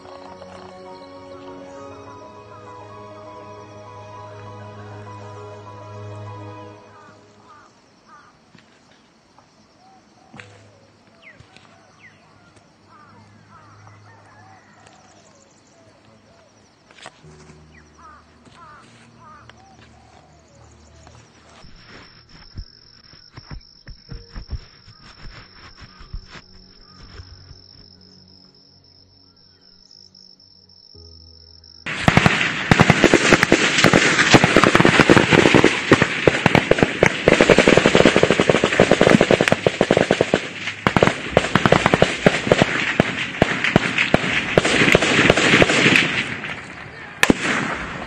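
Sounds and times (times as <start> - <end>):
heavy automatic gunfire: 31.9 - 48.0
single gunshot cracks: 40.8 - 48.0.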